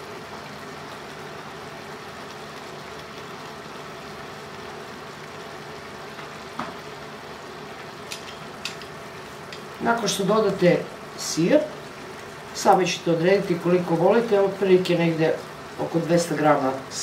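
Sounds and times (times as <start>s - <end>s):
food sizzling in a pan: 0.0s - 17.0s
soft tap: 6.2s - 6.8s.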